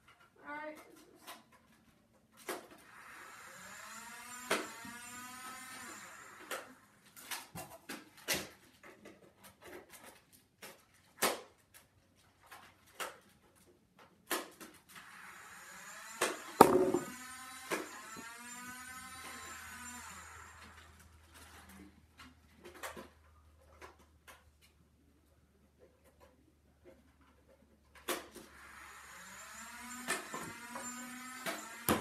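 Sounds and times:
dart blaster motor whirring: 2.4 - 7.5, 14.3 - 21.2, 28.1 - 32.0.

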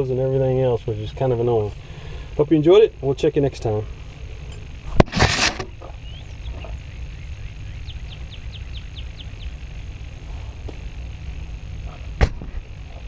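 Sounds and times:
steady low rumble: 0.0 - 13.0
bird chirping: 5.7 - 10.0.

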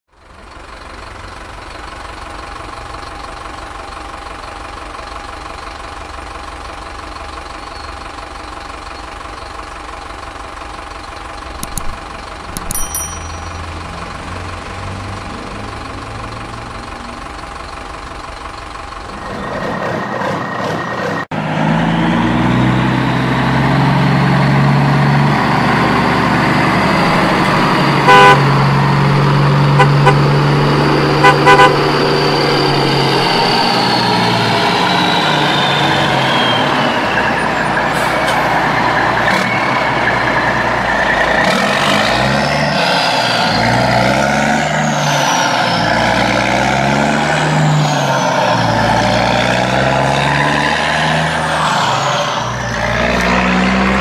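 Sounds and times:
truck engine: 0.1 - 54.0
short clicks: 11.6 - 12.8
truck horn toot: 28.0 - 28.8, 29.6 - 33.0.

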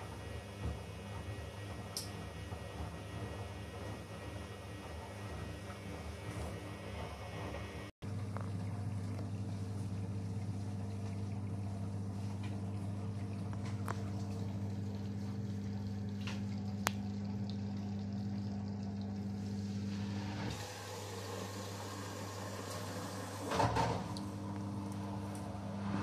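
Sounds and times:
laundry tumbling in washing machine: 0.0 - 16.8, 20.5 - 26.0
washing machine hum: 0.0 - 26.0
water sloshing in drum: 8.2 - 19.6.

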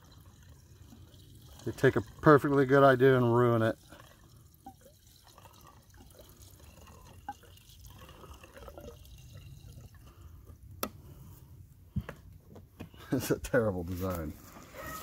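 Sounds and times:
small gurgles and drips: 0.0 - 11.6
fuel trickling into a tank: 0.0 - 13.5.

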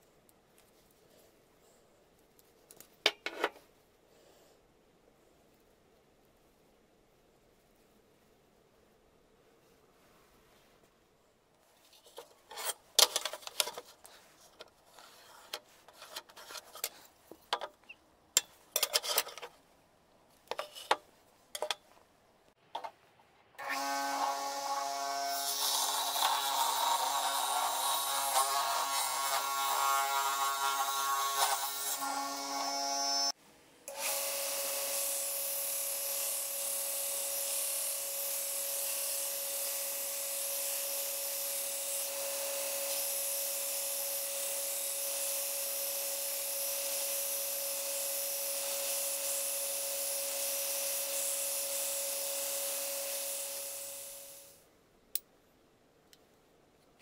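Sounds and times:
saw cutting wood: 23.6 - 54.5.

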